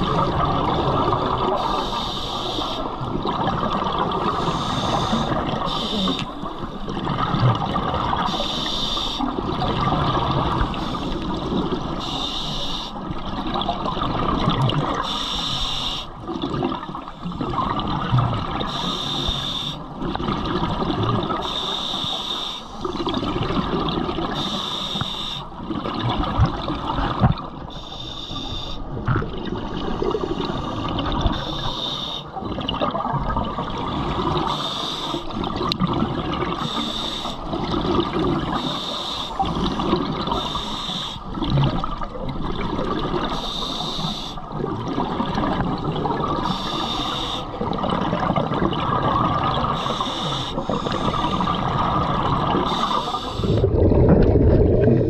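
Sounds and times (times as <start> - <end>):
hissing regulator inhale: 1.6 - 2.9, 4.3 - 6.4, 8.3 - 9.3, 12.0 - 13.0, 15.0 - 16.1, 18.7 - 19.8, 21.4 - 22.8, 24.4 - 25.5, 27.7 - 28.9, 30.0 - 32.4, 34.4 - 35.3, 36.6 - 37.5, 38.5 - 41.3, 43.3 - 44.4, 46.4 - 47.6, 49.8 - 51.6, 52.6 - 53.7
bubbling exhale underwater: 44.4 - 55.0.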